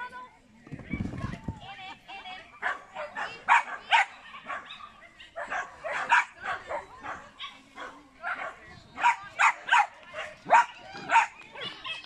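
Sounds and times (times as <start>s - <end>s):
dog barking: 2.6s - 12.0s.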